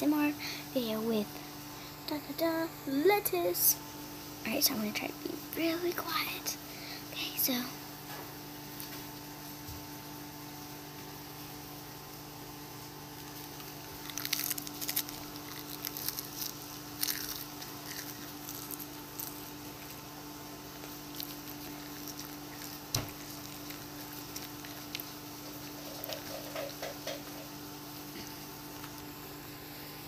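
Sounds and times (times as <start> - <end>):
steady low hum: 0.0 - 30.0
chewing crisp lettuce: 13.0 - 29.2.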